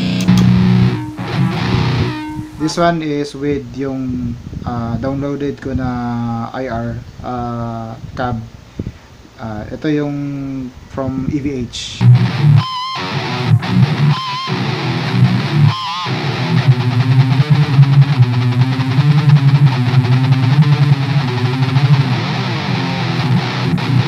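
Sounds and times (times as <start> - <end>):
distorted electric guitar riff: 0.0 - 2.8, 12.0 - 24.0.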